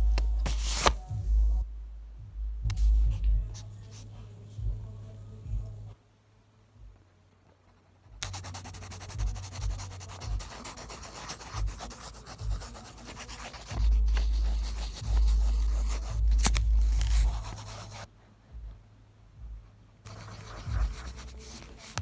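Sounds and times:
pencil scribbling on paper: 8.2s - 18.1s, 20.0s - 22.0s.

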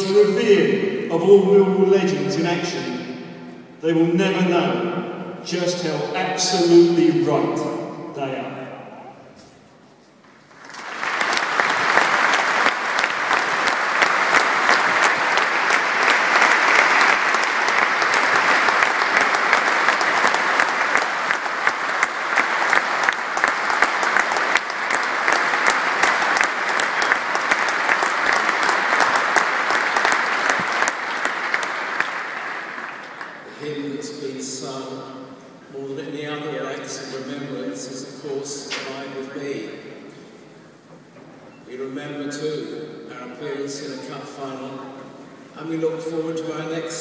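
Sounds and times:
stadium crowd applauding: 10.4s - 34.9s.

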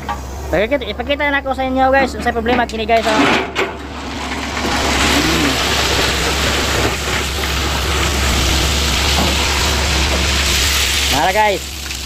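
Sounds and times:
truck engine running: 3.7s - 12.0s.

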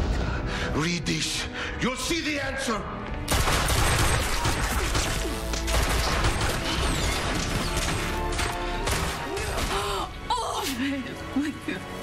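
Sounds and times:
dramatic music score: 0.0s - 12.0s
gunshots: 3.3s - 9.8s.

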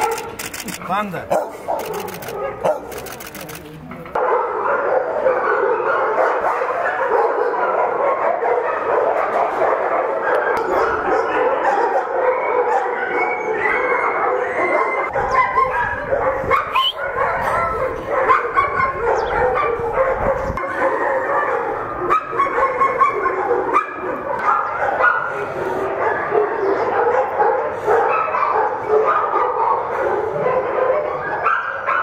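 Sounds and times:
dogs barking and whining: 0.0s - 3.3s, 4.2s - 32.0s.

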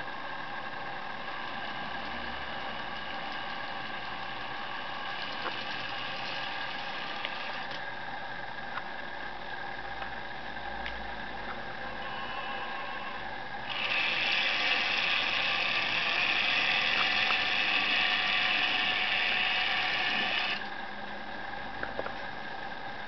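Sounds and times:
model train motor whirring: 1.2s - 7.8s, 12.0s - 20.7s.

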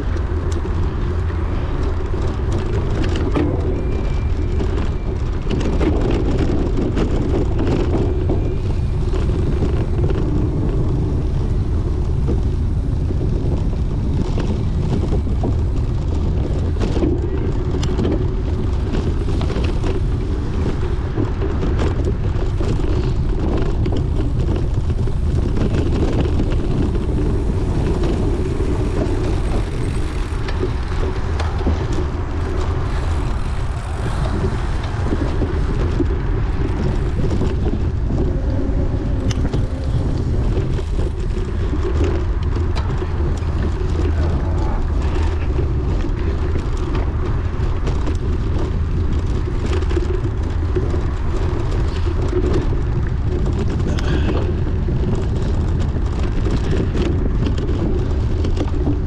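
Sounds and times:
bicycle clicks and rattles: 0.0s - 59.0s
wind buffeting microphone: 0.0s - 59.0s.

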